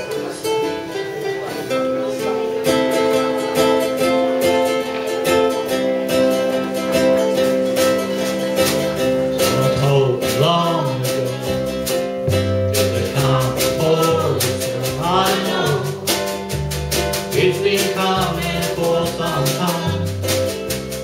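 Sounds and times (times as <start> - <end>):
strummed ukulele and guitar: 0.0 - 21.0
person singing: 8.0 - 16.3, 17.2 - 20.3.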